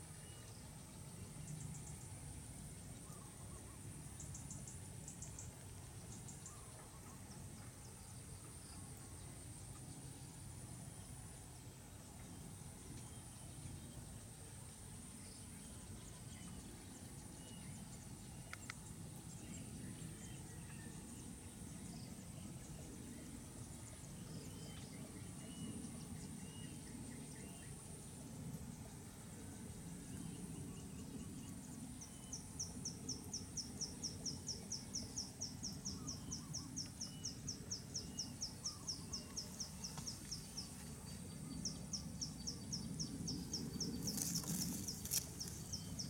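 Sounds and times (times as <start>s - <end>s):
high-pitched insect trill: 31.1s - 46.0s.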